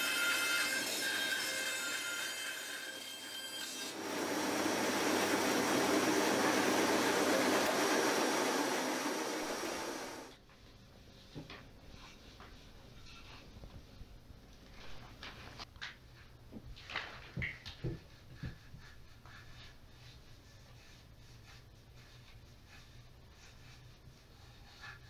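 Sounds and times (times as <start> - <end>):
bandsaw cutting wood: 0.0 - 10.3.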